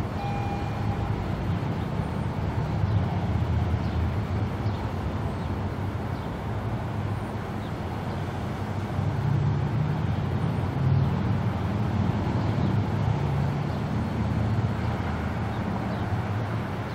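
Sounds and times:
diesel train rumbling: 0:00.0 - 0:16.9.

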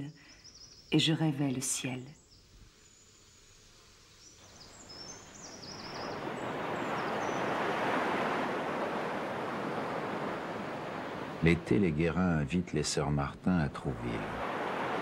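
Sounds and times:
faint bird chirps: 0:00.0 - 0:07.9
wave washing up shore: 0:05.2 - 0:11.9, 0:13.8 - 0:15.0.

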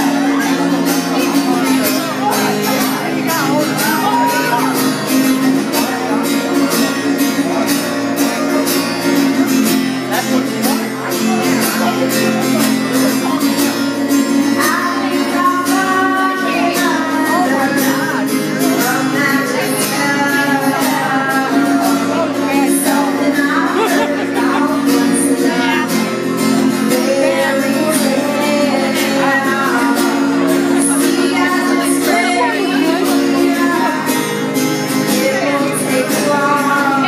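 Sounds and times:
acoustic guitar strumming: 0:00.0 - 0:37.0
woman singing: 0:02.9 - 0:06.1, 0:14.3 - 0:37.0.

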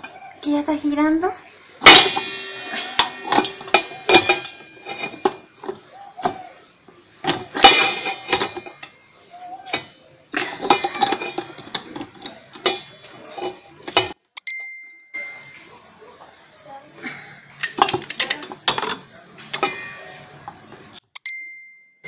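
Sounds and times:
metal tools clinking and clattering: 0:01.8 - 0:06.5, 0:07.2 - 0:09.0, 0:09.6 - 0:14.2, 0:17.5 - 0:20.6.

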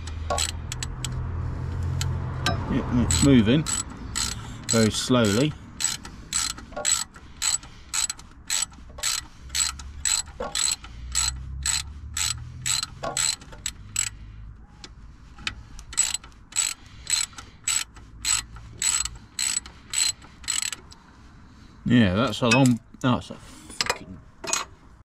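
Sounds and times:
socket ratchet clicking: 0:00.0 - 0:01.2, 0:01.9 - 0:14.2, 0:15.5 - 0:21.0.

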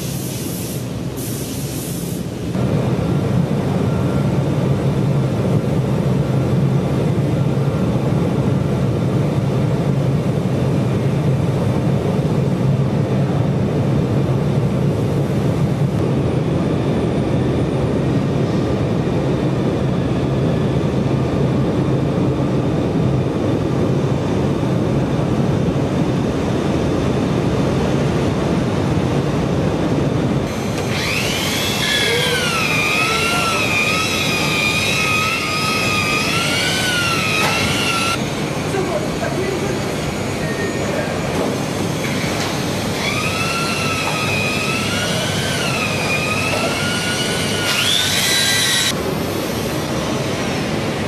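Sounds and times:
factory machinery drone: 0:00.0 - 0:51.0
wavering whine: 0:30.1 - 0:51.0.

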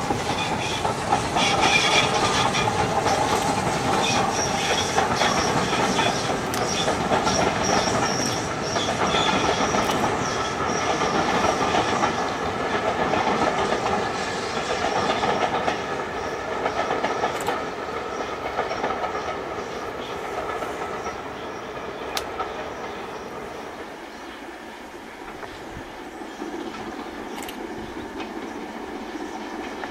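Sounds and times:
wheels clattering over rail joints: 0:00.0 - 0:19.5
steam locomotive passing: 0:00.0 - 0:29.9.

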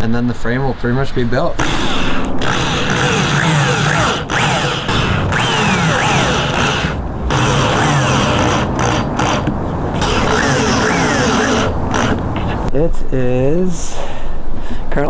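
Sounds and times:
drill driving screws into wood: 0:01.6 - 0:12.2.

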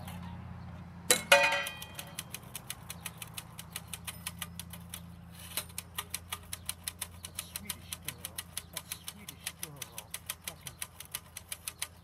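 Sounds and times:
metallic clank: 0:01.1 - 0:02.1
typewriter keys clicking: 0:01.8 - 0:05.1, 0:05.7 - 0:12.0.

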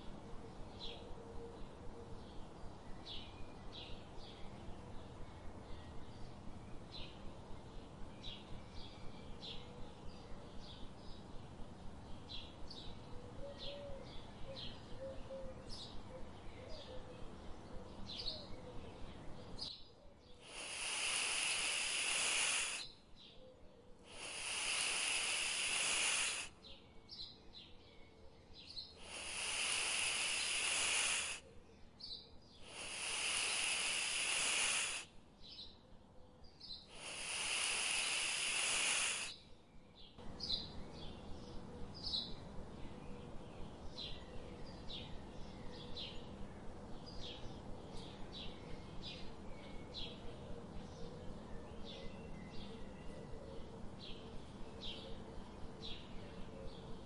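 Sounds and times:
small birds chirping: 0:00.0 - 0:57.0
long hissing sounds: 0:20.4 - 0:22.9, 0:24.1 - 0:26.7, 0:29.0 - 0:31.5, 0:32.6 - 0:35.2, 0:36.9 - 0:39.4.

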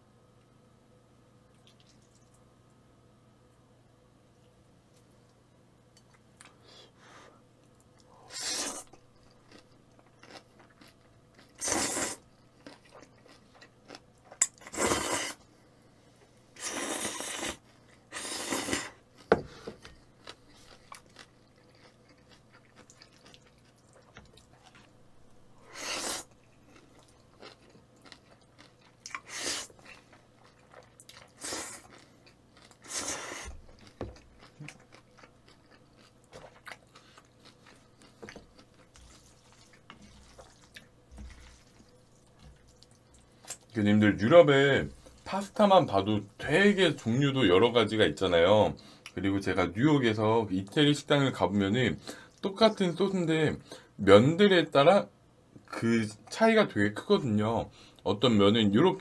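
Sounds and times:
loud eating bursts: 0:08.2 - 0:09.0, 0:10.2 - 0:13.5, 0:14.6 - 0:15.4, 0:25.6 - 0:30.2
chewing and crunching: 0:08.8 - 0:14.8, 0:17.2 - 0:25.4, 0:26.2 - 0:43.8.

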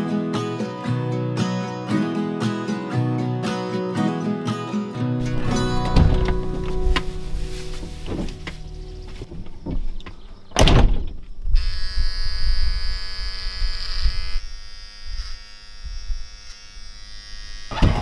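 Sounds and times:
vehicle door slamming: 0:09.2 - 0:11.2
electric shaver buzzing: 0:11.6 - 0:18.0.

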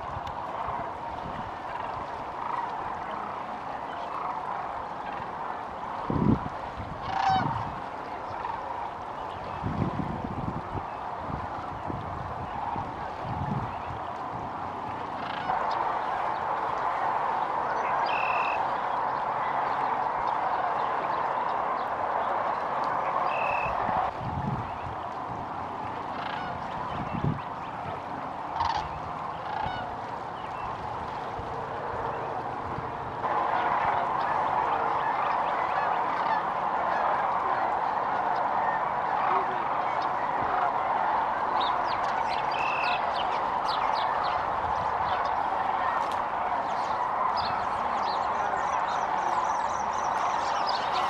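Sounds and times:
cranes calling in chorus: 0:00.0 - 0:06.1, 0:07.0 - 0:09.4, 0:14.9 - 0:21.8, 0:22.8 - 0:24.1, 0:26.0 - 0:27.0, 0:28.4 - 0:30.8, 0:33.2 - 0:51.0
nearer loud crane calls: 0:07.0 - 0:08.7, 0:15.0 - 0:16.6, 0:17.7 - 0:20.9, 0:23.0 - 0:24.1, 0:26.0 - 0:27.0, 0:28.5 - 0:30.7, 0:33.2 - 0:51.0.

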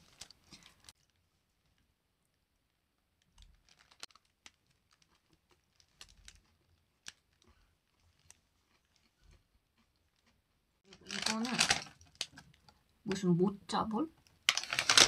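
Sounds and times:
paper wrapper crinkling: 0:00.0 - 0:01.9, 0:03.2 - 0:09.1, 0:10.9 - 0:12.7, 0:14.2 - 0:15.0.

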